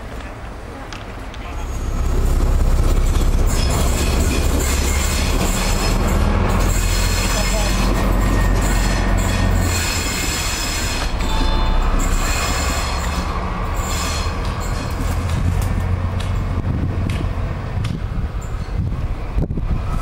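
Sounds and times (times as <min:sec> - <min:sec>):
low train rumble: 0:00.0 - 0:20.0
train wheels squealing on rails: 0:03.0 - 0:16.6, 0:18.2 - 0:20.0.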